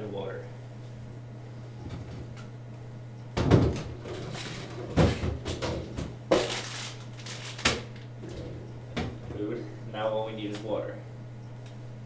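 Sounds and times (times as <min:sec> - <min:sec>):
steady low hum: 0:00.0 - 0:12.0
rustling of packets: 0:06.4 - 0:08.0.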